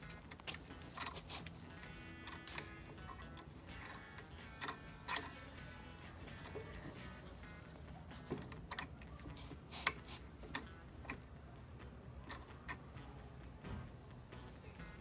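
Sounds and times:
tap wrench clicking: 0:00.3 - 0:07.2, 0:08.2 - 0:09.1, 0:09.8 - 0:11.2, 0:12.2 - 0:12.8.

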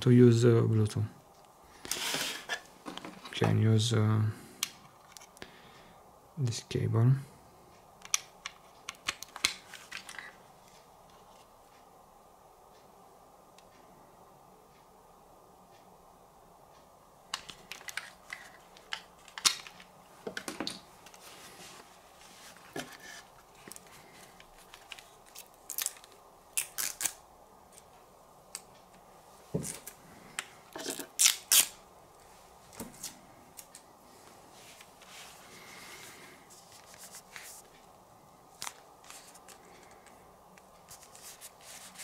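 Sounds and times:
packaging clicks and rustles: 0:17.4 - 0:21.2, 0:22.5 - 0:27.2.

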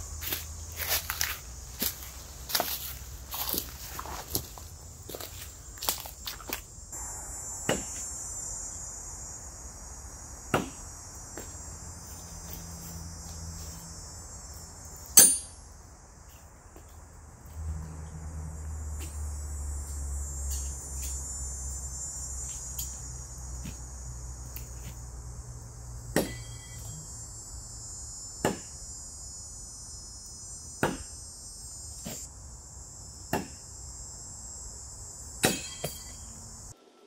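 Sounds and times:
high-pitched insect chorus: 0:00.0 - 0:36.8
low rumble: 0:07.0 - 0:09.4
knives striking a tree: 0:10.5 - 0:10.8, 0:15.0 - 0:15.6, 0:26.1 - 0:26.7, 0:28.4 - 0:28.7, 0:30.8 - 0:31.1, 0:33.3 - 0:33.6, 0:35.4 - 0:36.2.

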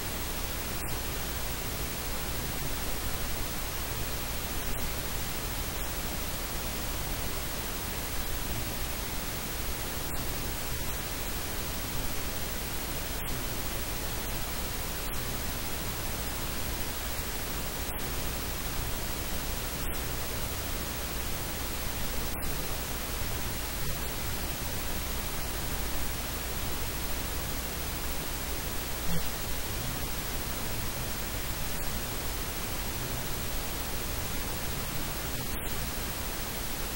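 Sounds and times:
static hiss: 0:00.0 - 0:36.9.

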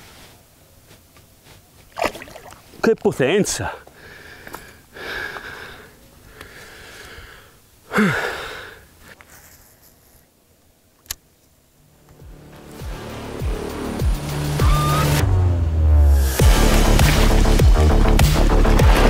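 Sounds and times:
man breathing out heavily: 0:03.8 - 0:09.2
music: 0:12.0 - 0:19.0.

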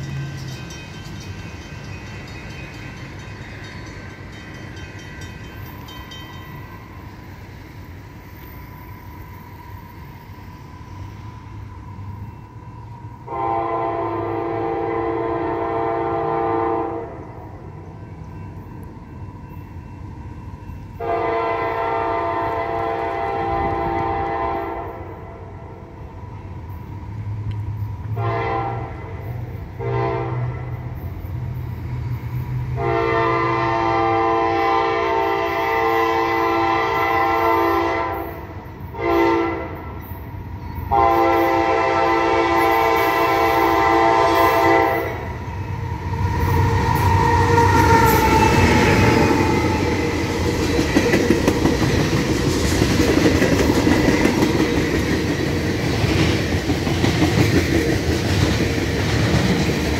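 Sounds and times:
train rumbling: 0:00.0 - 0:59.9
locomotive air horn blasts: 0:13.3 - 0:17.3, 0:21.0 - 0:25.4, 0:28.2 - 0:29.2, 0:29.8 - 0:30.8, 0:32.8 - 0:39.8, 0:40.9 - 0:45.2.

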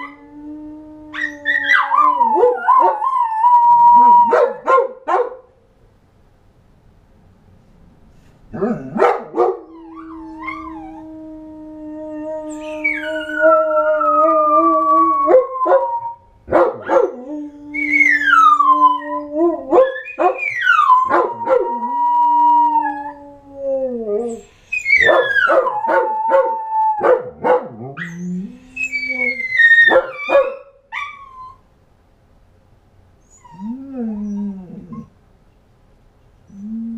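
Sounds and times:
dogs howling: 0:01.0 - 0:04.6, 0:08.8 - 0:31.4
dogs barking and yipping: 0:29.2 - 0:31.3.

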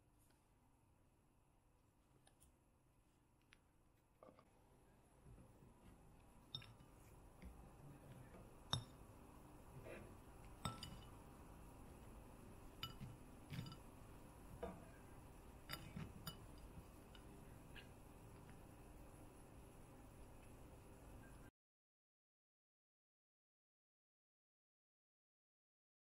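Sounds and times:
glass plate clinks: 0:08.7 - 0:09.0, 0:10.6 - 0:11.2, 0:12.8 - 0:13.9.

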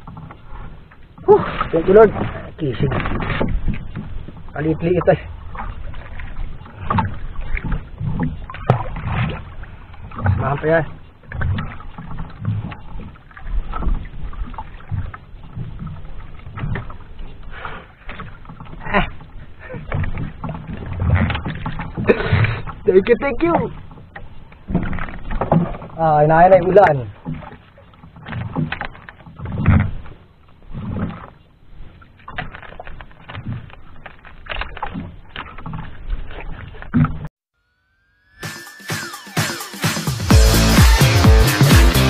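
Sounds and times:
water lapping against boat hull: 0:00.0 - 0:37.3.

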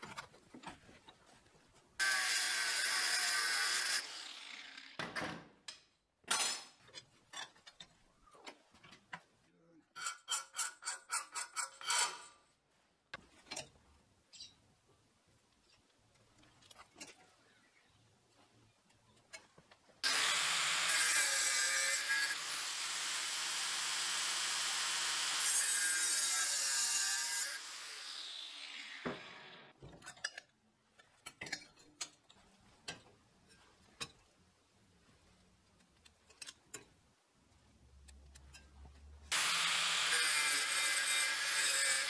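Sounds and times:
angle grinder grinding steel: 0:20.0 - 0:29.6, 0:39.3 - 0:42.0.

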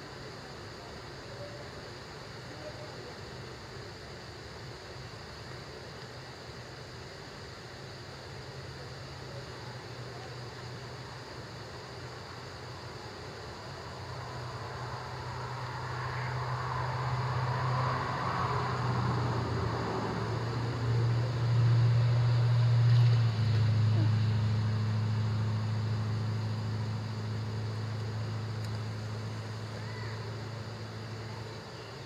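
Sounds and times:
vehicle passing on highway: 0:14.1 - 0:31.2.

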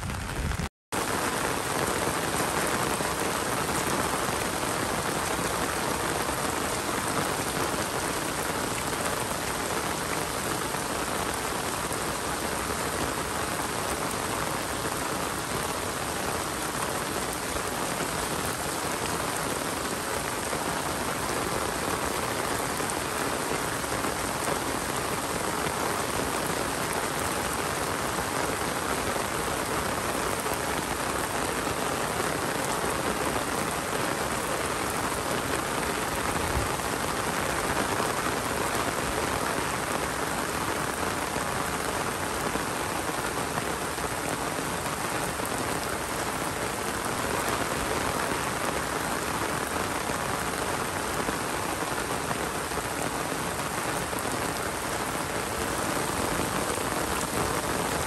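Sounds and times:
steady rain falling: 0:00.0 - 0:58.0.

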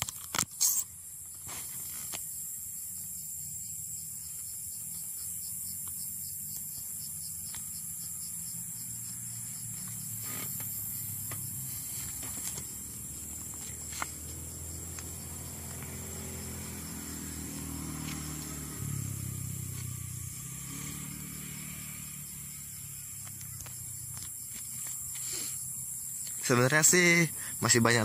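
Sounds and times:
vehicle engine humming: 0:02.0 - 0:26.3.

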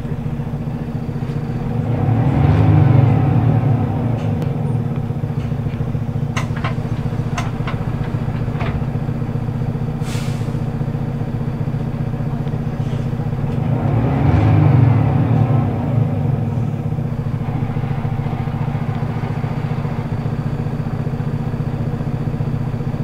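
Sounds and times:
bus diesel engine idling: 0:00.0 - 0:23.0
short hiss: 0:10.0 - 0:10.7.

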